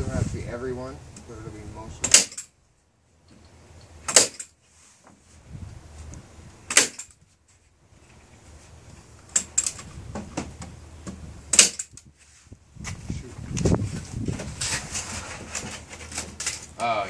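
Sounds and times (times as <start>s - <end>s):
nail gun firing: 2.0s - 2.5s, 4.0s - 4.5s, 6.7s - 7.2s, 11.5s - 12.0s.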